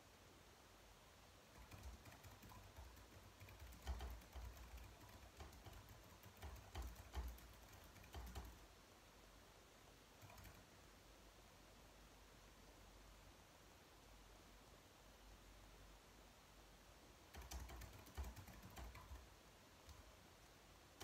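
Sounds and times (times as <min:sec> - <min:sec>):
keyboard keystroke clicks: 0:01.6 - 0:08.6, 0:17.3 - 0:19.2.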